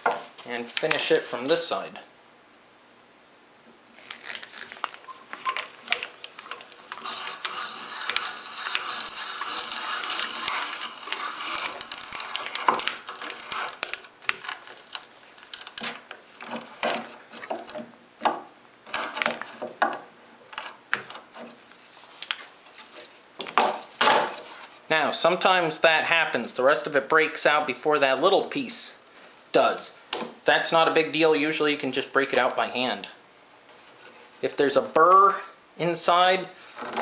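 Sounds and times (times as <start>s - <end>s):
hand brace bit boring wood: 5.6s - 17.8s.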